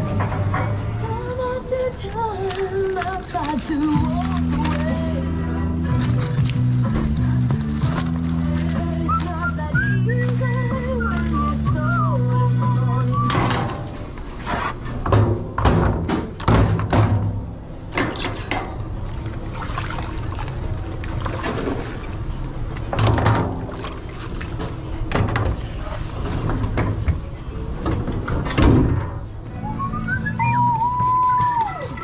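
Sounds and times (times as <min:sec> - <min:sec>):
background music: 0:00.0 - 0:14.4, 0:29.3 - 0:32.0.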